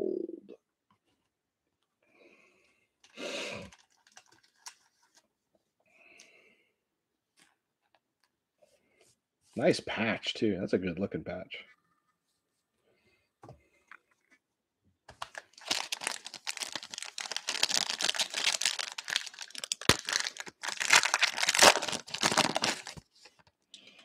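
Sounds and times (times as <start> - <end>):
foil wrapper tearing and crinkling: 15.2 - 23.1.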